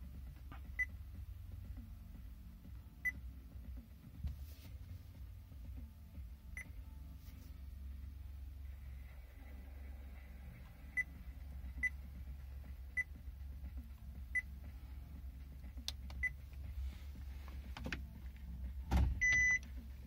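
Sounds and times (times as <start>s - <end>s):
steady low hum: 0.0s - 20.0s
reverse warning beep: 19.2s - 19.6s
touchscreen key beeps: 19.2s - 19.6s.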